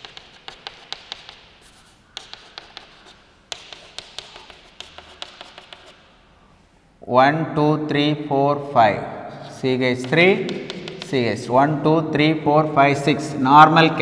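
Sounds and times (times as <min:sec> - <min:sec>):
chalk tapping on blackboard: 0:00.0 - 0:06.1, 0:09.4 - 0:11.4.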